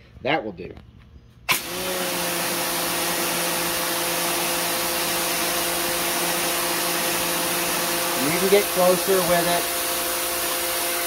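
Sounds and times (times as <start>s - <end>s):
pressure washer motor humming: 1.5s - 11.0s
water spray hissing on concrete: 1.8s - 11.0s.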